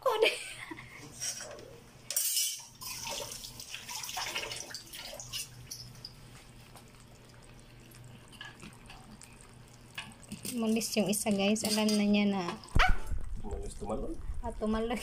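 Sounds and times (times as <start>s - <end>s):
faint steady hum: 0.0s - 15.0s
crabs clicking in metal pot: 8.2s - 13.9s.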